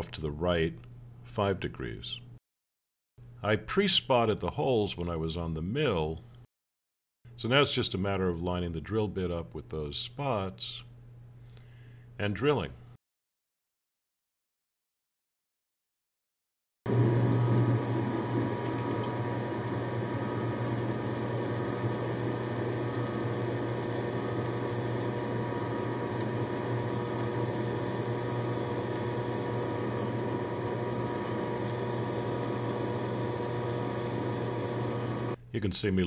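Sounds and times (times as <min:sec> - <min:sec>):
drill press motor humming: 0:16.9 - 0:35.4.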